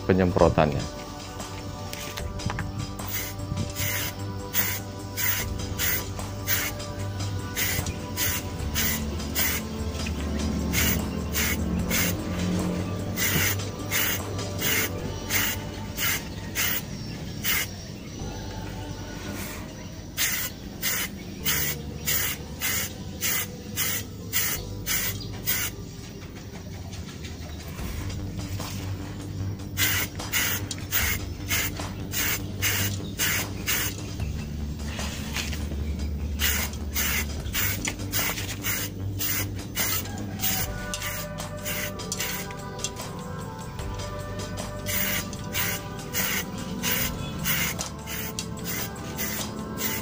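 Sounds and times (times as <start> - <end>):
background music: 0.0 - 50.0
spray can short hisses: 3.0 - 6.9, 7.5 - 9.8, 10.7 - 12.2, 13.2 - 17.8, 20.2 - 25.7, 29.8 - 34.0, 36.4 - 42.6, 44.8 - 50.0.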